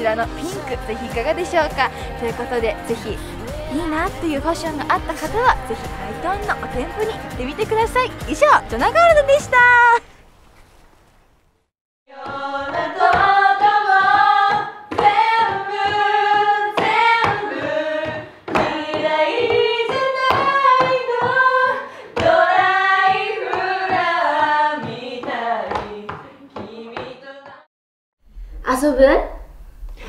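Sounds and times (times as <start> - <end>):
women singing together: 0.0 - 8.7, 12.1 - 27.7
hands clapping in a steady beat: 12.3 - 21.5.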